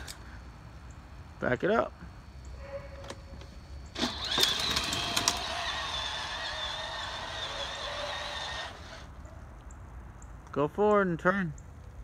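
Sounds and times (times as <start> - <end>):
electric motor whine: 3.9 - 9.1
toy car clicks: 4.0 - 8.9.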